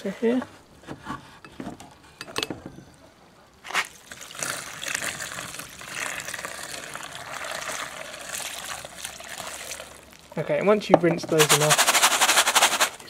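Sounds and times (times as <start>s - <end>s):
water pouring through a sieve: 3.7s - 10.4s, 11.3s - 13.0s.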